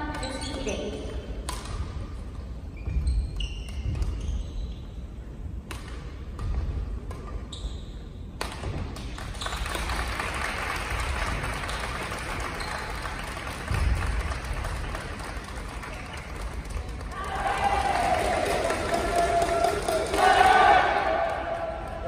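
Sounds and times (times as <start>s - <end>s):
shoe squeaks: 0.2s - 1.0s, 2.7s - 5.1s, 7.4s - 8.2s
racket striking shuttlecock: 1.4s - 2.4s, 5.6s - 7.5s, 8.3s - 9.2s.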